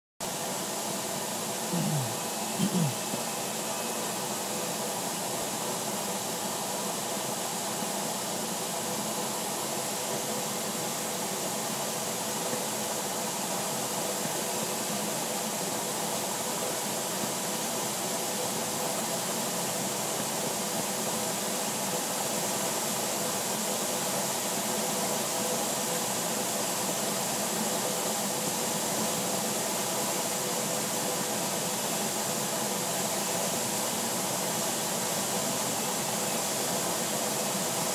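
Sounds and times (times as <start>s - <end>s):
faint steady hum: 1.6s - 5.2s.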